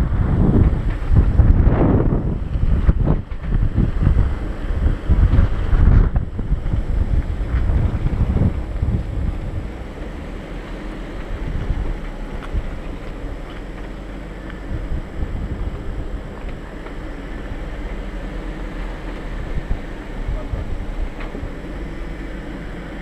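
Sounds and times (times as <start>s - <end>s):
off-road vehicle engine rumble: 0.0s - 23.0s
stones knocking under tires: 5.2s - 19.9s.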